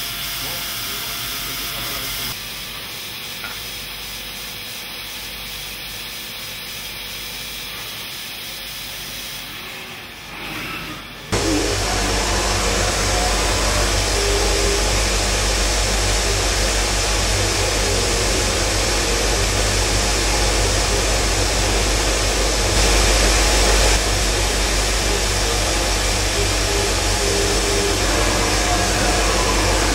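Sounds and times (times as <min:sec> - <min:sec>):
grinding machine whooshing: 0:09.6 - 0:29.9
low machine hum: 0:11.3 - 0:29.9.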